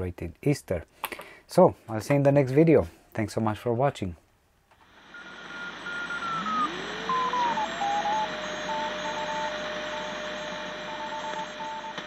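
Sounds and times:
radio static hiss: 4.8s - 12.0s
heterodyne whistle: 5.1s - 12.0s
morse code beeps: 5.1s - 12.0s.

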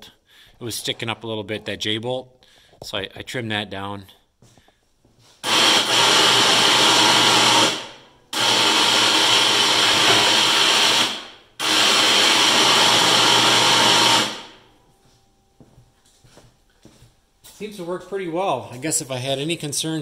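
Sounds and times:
electric winch motor running: 5.4s - 14.7s.

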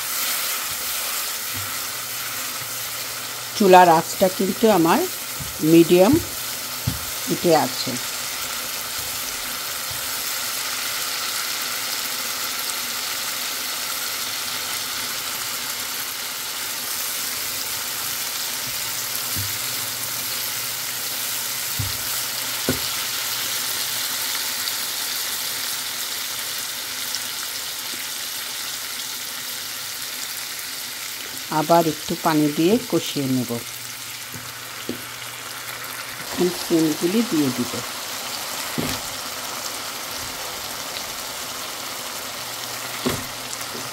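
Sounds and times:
masala sizzling in frying pan: 0.0s - 43.9s.

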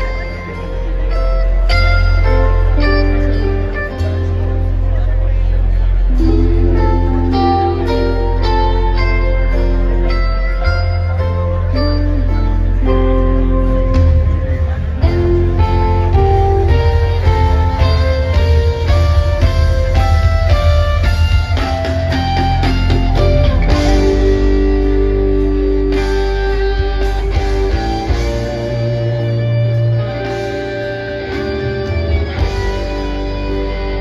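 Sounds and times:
rock band playing instrumental: 0.0s - 34.0s.

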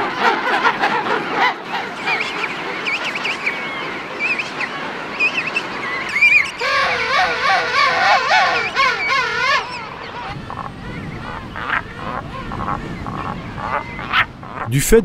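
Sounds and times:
loud penguin call: 0.0s - 14.7s
penguin colony calling: 0.0s - 14.8s.

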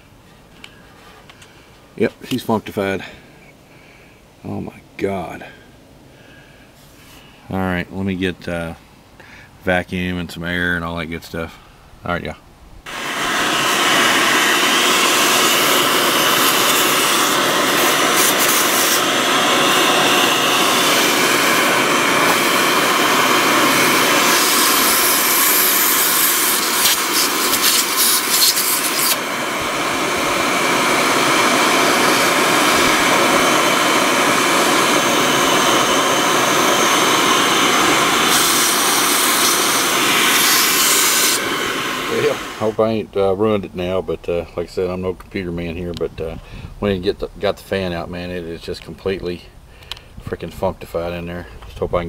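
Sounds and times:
vacuum cleaner running: 12.9s - 42.8s.

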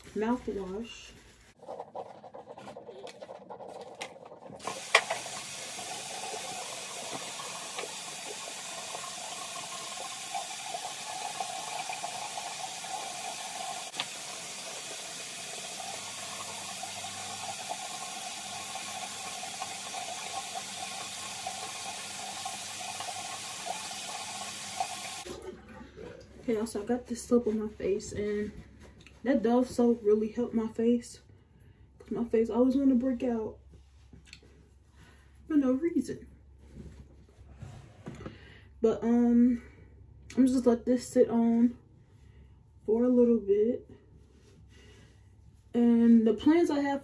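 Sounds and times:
sink tap running: 3.0s - 25.4s.

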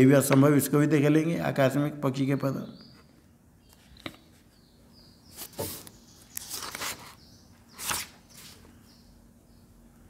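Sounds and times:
paper rustling: 5.4s - 8.7s.

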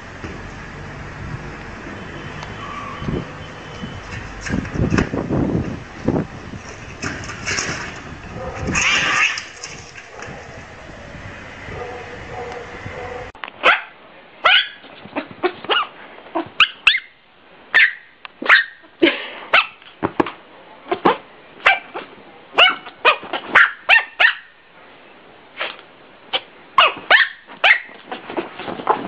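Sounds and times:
dog barking: 8.4s - 8.7s, 11.7s - 14.8s, 17.8s - 18.8s, 21.6s - 24.5s, 26.8s - 27.9s.

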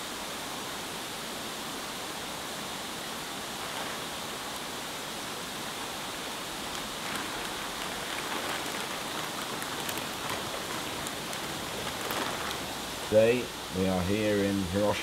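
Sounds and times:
watery hiss: 0.0s - 15.0s
plastic bag crinkling: 3.6s - 4.2s, 6.3s - 13.2s.

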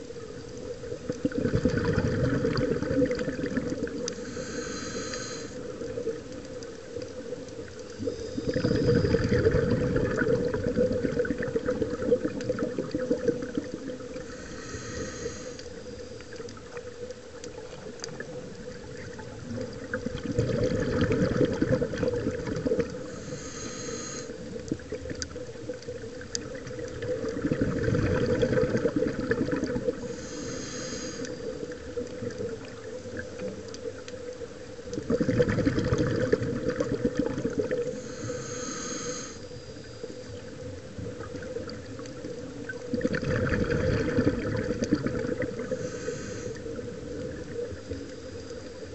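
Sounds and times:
bubbling exhale: 1.0s - 6.4s, 7.9s - 16.8s, 18.9s - 25.2s, 26.3s - 33.5s, 35.0s - 40.3s, 42.7s - 48.9s
steady hum: 3.9s - 6.9s, 13.4s - 17.4s, 22.8s - 24.7s, 29.6s - 32.6s, 37.9s - 40.3s
regulator hissing inhale: 4.0s - 6.6s, 7.8s - 9.5s, 14.0s - 16.7s, 22.9s - 24.7s, 29.8s - 32.0s, 37.8s - 40.5s, 45.6s - 48.9s.

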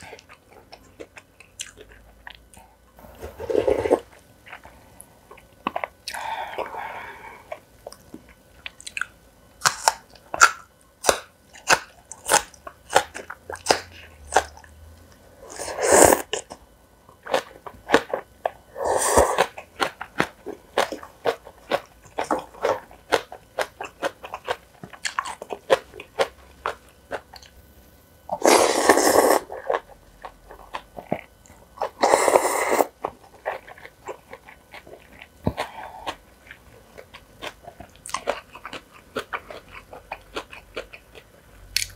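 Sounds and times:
crisp crunching and chewing: 7.8s - 14.7s, 19.3s - 27.6s, 28.4s - 41.9s
slurping noodles: 15.5s - 16.4s, 18.7s - 19.6s, 28.3s - 29.8s, 31.8s - 33.6s.

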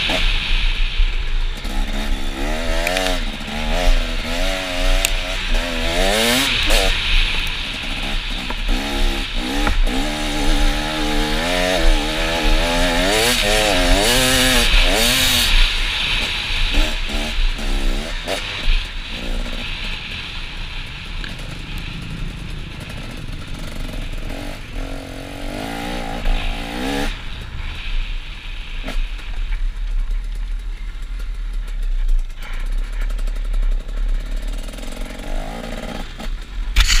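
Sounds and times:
wind rumbling on microphone: 0.0s - 37.0s
dirt bike engine revving: 1.5s - 27.4s, 32.5s - 37.0s.

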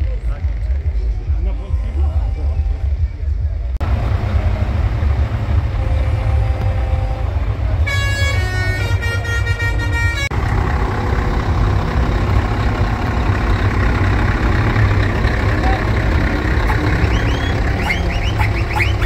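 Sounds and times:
low rumble: 0.0s - 19.0s
musical air horn: 5.7s - 10.3s.

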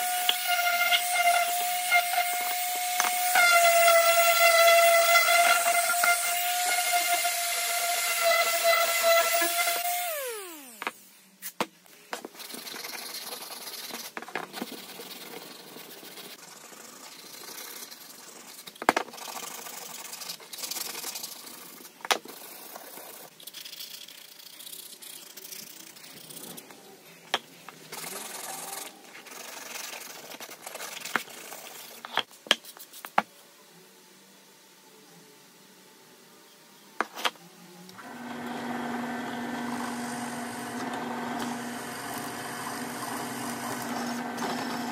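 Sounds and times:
orbital sander winding down: 5.6s - 10.9s, 38.0s - 44.9s
hand sanding scratchy rubbing: 12.3s - 26.7s.

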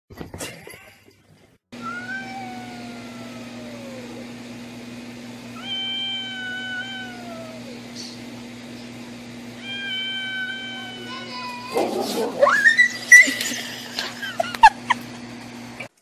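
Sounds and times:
cat yowling: 1.8s - 4.4s, 5.6s - 8.2s, 9.6s - 13.5s.

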